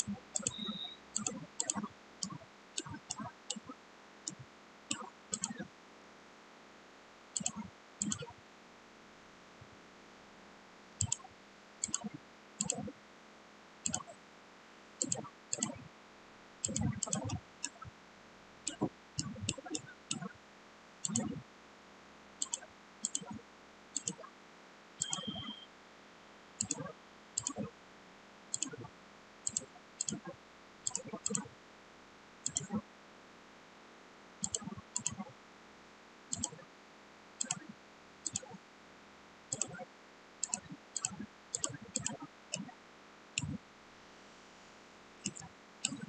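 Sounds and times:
computer mouse clicking: 0:00.0 - 0:05.7, 0:07.4 - 0:08.4, 0:11.0 - 0:12.9, 0:13.8 - 0:14.2, 0:15.0 - 0:15.9, 0:16.6 - 0:17.9, 0:18.7 - 0:20.4, 0:21.0 - 0:21.4, 0:22.4 - 0:23.4, 0:24.0 - 0:24.3, 0:25.0 - 0:25.7, 0:26.6 - 0:27.7, 0:28.5 - 0:31.5, 0:32.4 - 0:32.8, 0:34.4 - 0:35.3, 0:36.3 - 0:36.6, 0:37.4 - 0:38.6, 0:39.5 - 0:39.8, 0:40.4 - 0:42.7, 0:43.4 - 0:43.6, 0:45.2 - 0:46.0.

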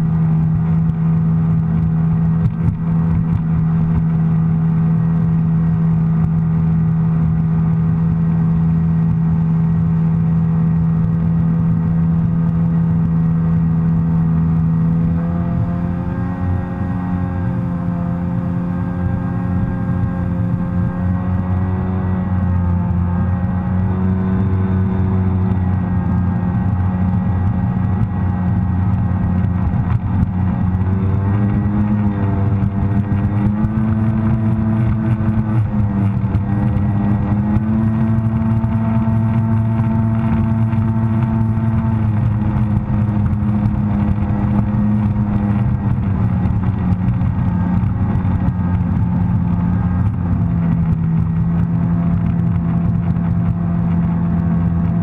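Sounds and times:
watercraft engine droning: 0:00.0 - 0:55.0.

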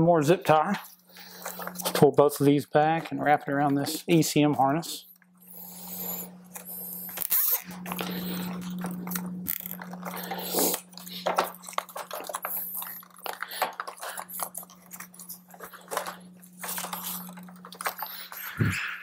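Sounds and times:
wires rustling: 0:06.6 - 0:19.0.

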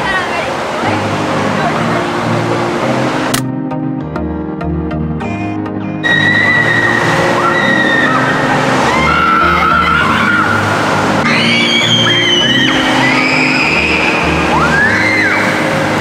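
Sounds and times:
rushing splashing water: 0:00.0 - 0:03.4, 0:06.0 - 0:16.0
background music: 0:00.9 - 0:16.0
high-pitched squealing: 0:06.0 - 0:16.0.

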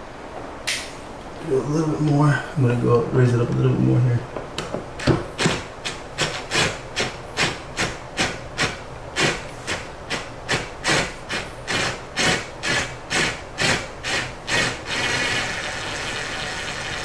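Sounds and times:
cordless drill rhythmic rasping: 0:07.8 - 0:17.0.

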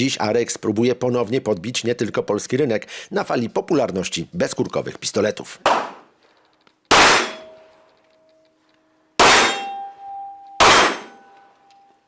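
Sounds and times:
loud metallic clangs ringing: 0:06.9 - 0:07.8, 0:09.2 - 0:11.6.

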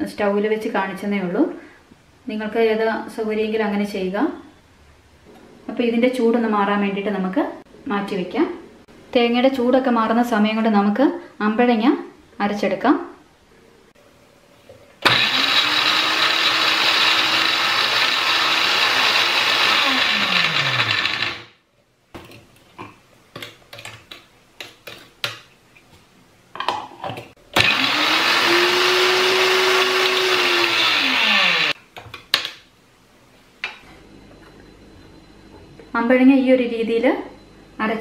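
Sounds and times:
electric grinder whirring: 0:15.0 - 0:21.5, 0:27.6 - 0:31.8.

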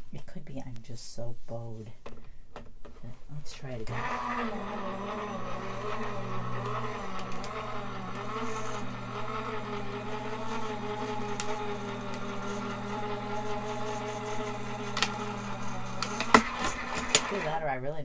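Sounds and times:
die-cutting machine motor humming: 0:03.8 - 0:17.6.

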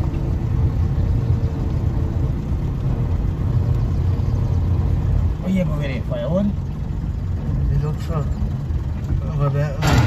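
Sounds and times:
car engine rumble: 0:00.0 - 0:10.0.

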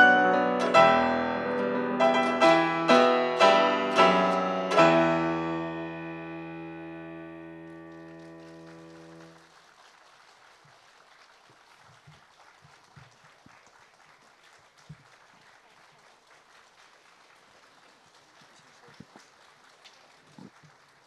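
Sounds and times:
piano chord ringing: 0:00.0 - 0:09.3.

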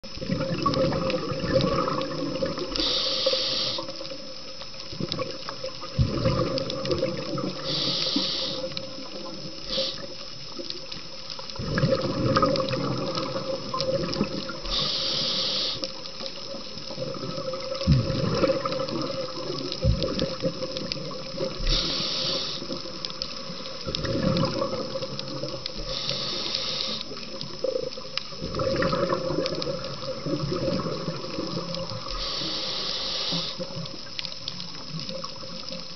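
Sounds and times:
gurgling exhaled bubbles: 0:00.0 - 0:10.9, 0:11.5 - 0:35.9
regulator inhale hiss: 0:02.6 - 0:04.3, 0:07.4 - 0:10.4, 0:14.6 - 0:16.3, 0:21.4 - 0:23.9, 0:25.8 - 0:27.8, 0:31.7 - 0:34.0
steady hum: 0:13.3 - 0:18.1, 0:21.0 - 0:27.7.

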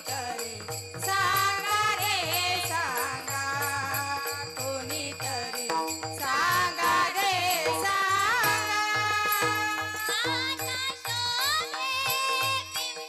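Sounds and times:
harmonium: 0:00.0 - 0:13.0
small hand cymbals ringing: 0:00.0 - 0:13.0
woman singing devotional song: 0:00.0 - 0:13.0
barrel drum beat: 0:05.3 - 0:13.0.

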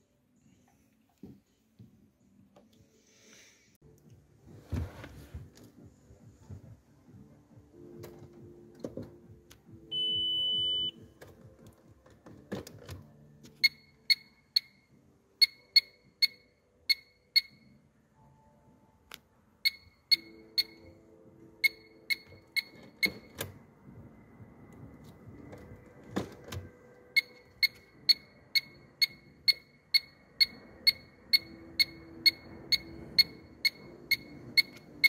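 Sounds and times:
car electronic beeper: 0:09.9 - 0:11.0, 0:13.6 - 0:17.8, 0:19.6 - 0:23.4, 0:27.0 - 0:35.0.

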